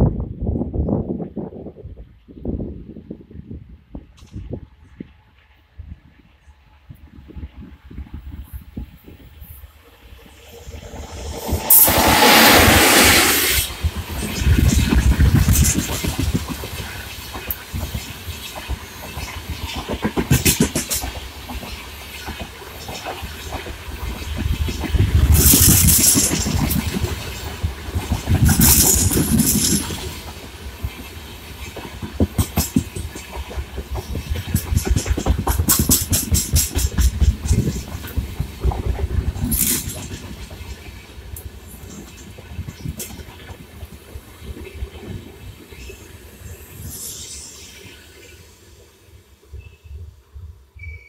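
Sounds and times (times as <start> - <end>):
loud burst of hiss: 10.3 - 15.8, 45.8 - 49.7
train wheels clattering over rail joints: 10.9 - 45.9.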